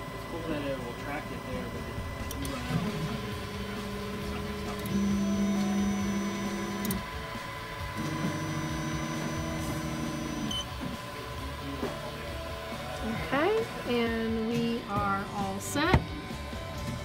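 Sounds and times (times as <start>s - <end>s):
stepper motors whining: 0.9s - 11.5s.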